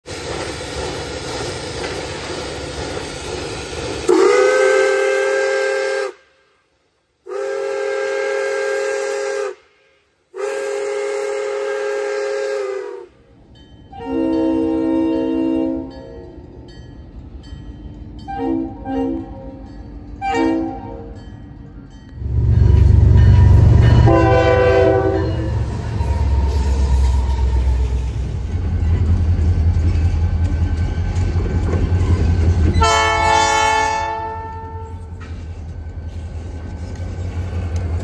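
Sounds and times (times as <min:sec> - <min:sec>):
locomotive air horn blasts: 0:04.1 - 0:06.5, 0:07.3 - 0:13.1, 0:13.9 - 0:16.1, 0:18.3 - 0:19.4, 0:20.2 - 0:21.2, 0:23.4 - 0:28.0, 0:32.8 - 0:35.1.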